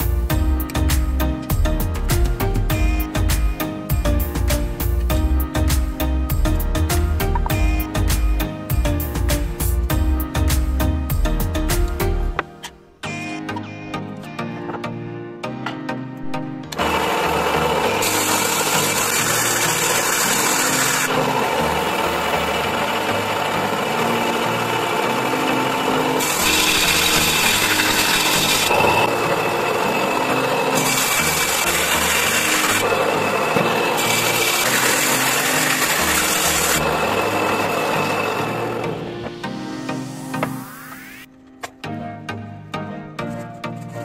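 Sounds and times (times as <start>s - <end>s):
power tool working wood: 16.6s - 41.2s.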